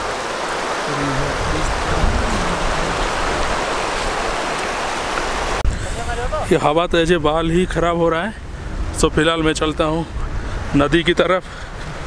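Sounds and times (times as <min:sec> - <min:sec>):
river rushing: 0:00.0 - 0:06.7
wind buffeting microphone: 0:00.4 - 0:11.1.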